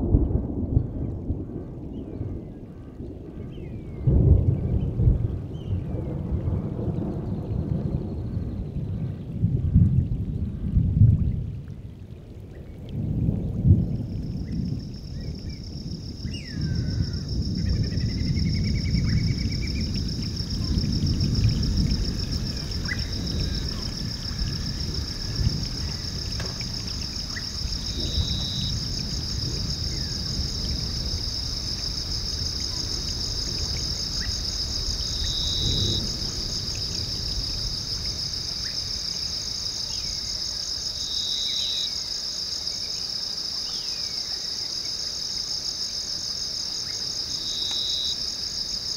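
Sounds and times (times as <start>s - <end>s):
insects chirring: 13.9s - 48.9s
lower insect trill: 14.3s - 48.9s.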